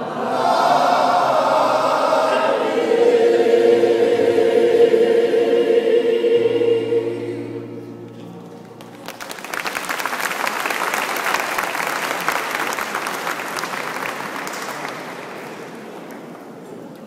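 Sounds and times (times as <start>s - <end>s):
choir holding a note: 0.0s - 8.1s
audience applauding: 8.8s - 16.5s.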